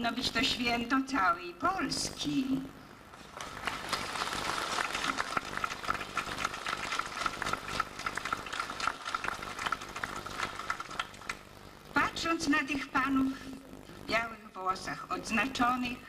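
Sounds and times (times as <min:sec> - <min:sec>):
audience applauding: 0:03.3 - 0:11.5.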